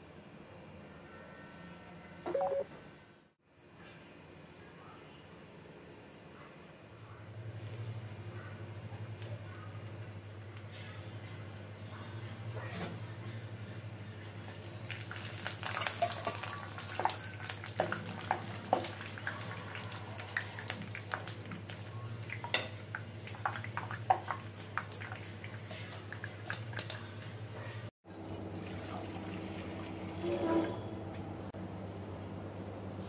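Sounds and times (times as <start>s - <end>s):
water boiling in a pot: 13.8s - 30.8s
dough balls deep-frying: 14.2s - 27.6s.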